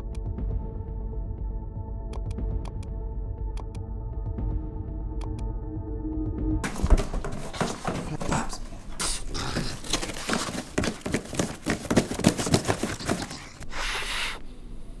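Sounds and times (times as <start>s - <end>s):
cardboard box crinkling: 9.6s - 13.6s.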